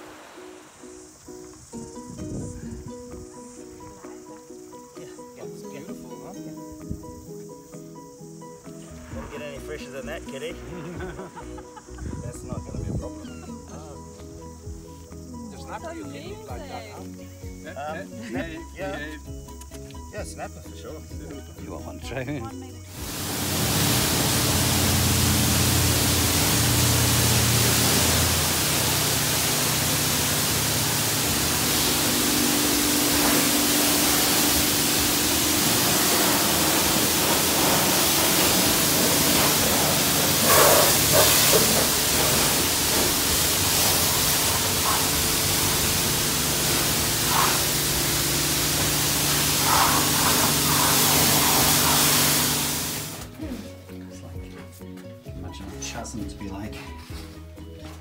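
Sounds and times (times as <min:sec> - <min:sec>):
pressure washer spraying hiss: 0:00.0 - 0:15.8, 0:22.9 - 0:53.4.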